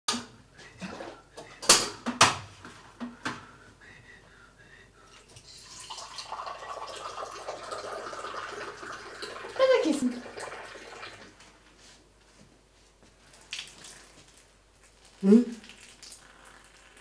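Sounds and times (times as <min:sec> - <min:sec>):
tea pouring into a glass: 0:05.3 - 0:11.4, 0:15.6 - 0:16.9.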